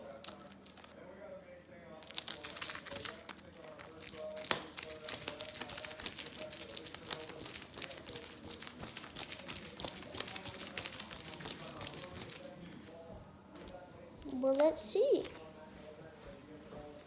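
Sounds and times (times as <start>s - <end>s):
wrapper crinkling: 0.0s - 0.9s, 2.0s - 12.6s
candy bar slapping against hand: 2.0s - 12.9s.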